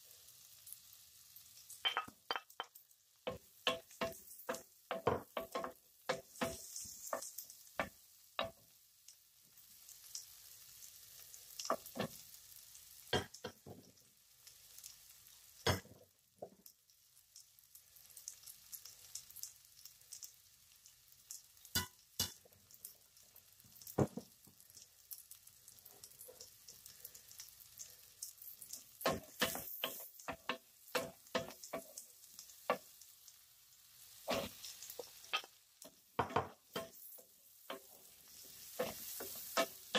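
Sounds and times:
garlic sizzling in fat: 0:00.0 - 0:39.9
wooden spoon knocking on pot: 0:01.9 - 0:06.6, 0:36.2 - 0:37.0.

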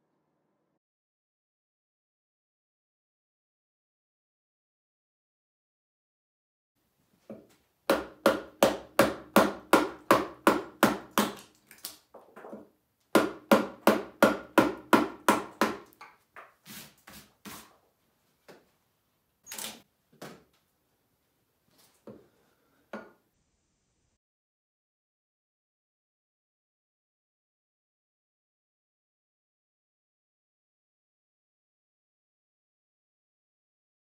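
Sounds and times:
mallet striking chisel into wood: 0:07.9 - 0:11.4, 0:13.1 - 0:16.0.

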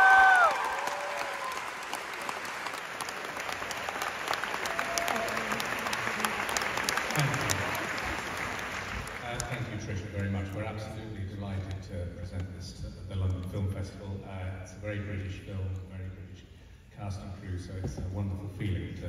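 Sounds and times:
loud high whoop: 0:00.0 - 0:01.8, 0:04.5 - 0:05.9
audience clapping and cheering: 0:00.0 - 0:10.3.

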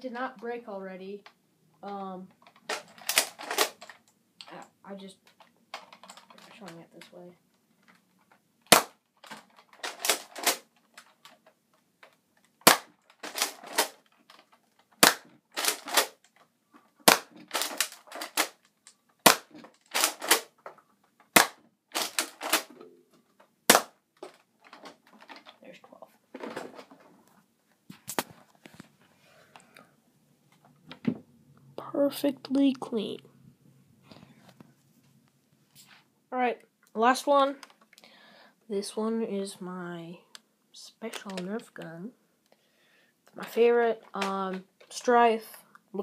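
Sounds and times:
rattling and handling noises: 0:01.8 - 0:29.7
dart blaster firing crack: 0:08.7 - 0:09.0, 0:12.6 - 0:14.0, 0:15.0 - 0:16.2, 0:17.0 - 0:18.5, 0:19.2 - 0:20.5, 0:21.3 - 0:22.7, 0:23.7 - 0:24.0.

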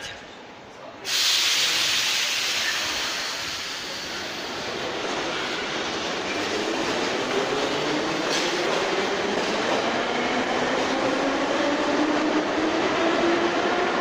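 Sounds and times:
train rolling on rails: 0:00.1 - 0:14.0
loud hiss of air: 0:01.0 - 0:04.8.

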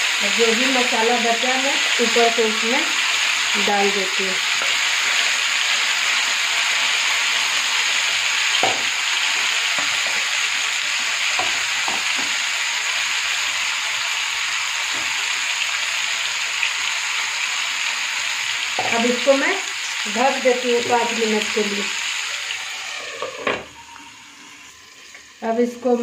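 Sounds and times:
chicken sizzling in oil: 0:00.0 - 0:26.0.

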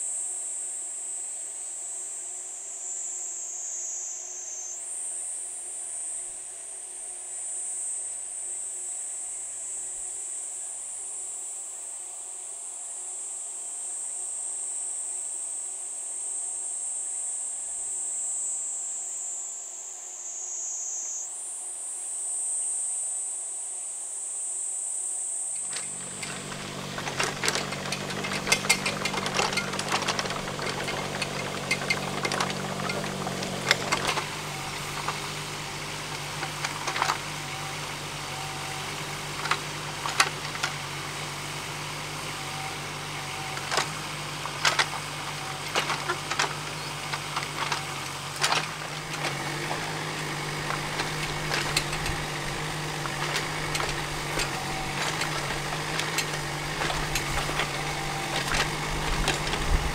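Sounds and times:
insects chorus: 0:00.0 - 0:59.9
small diesel engine clattering: 0:25.6 - 0:59.9.

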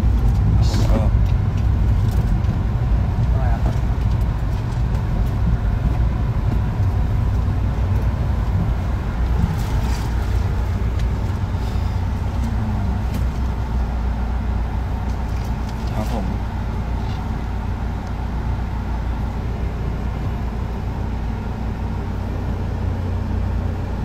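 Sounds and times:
road and engine rumble in van: 0:00.0 - 0:24.0.

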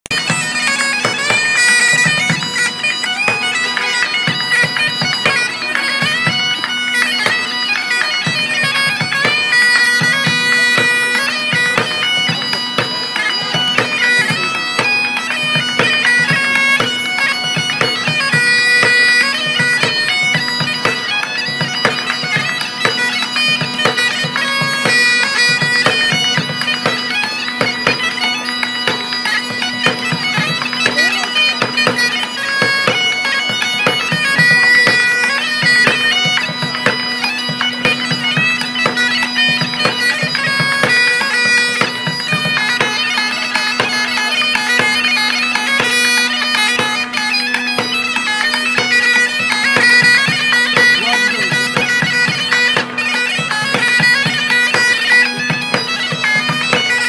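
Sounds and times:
bagpipes playing lively tune: 0:00.0 - 0:57.0.

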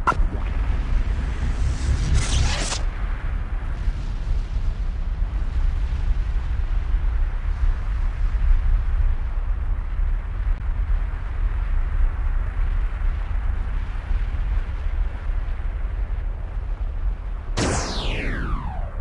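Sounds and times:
low rumble: 0:00.0 - 0:02.0, 0:17.6 - 0:19.0.

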